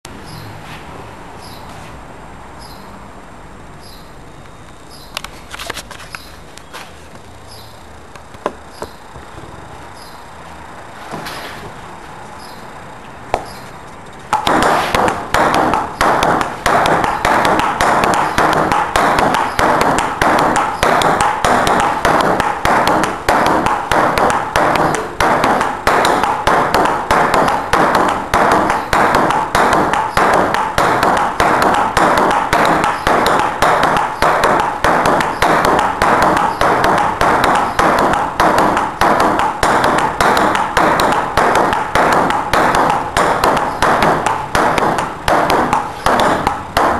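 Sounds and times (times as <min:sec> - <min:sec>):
ping pong ball clacking: 0:14.3 - 0:46.9.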